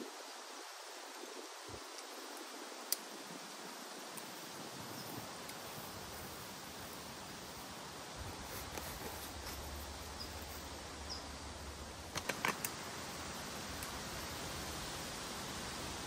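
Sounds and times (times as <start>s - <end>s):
steady forest hiss: 0.0s - 16.0s
sharp clicks: 12.1s - 12.8s.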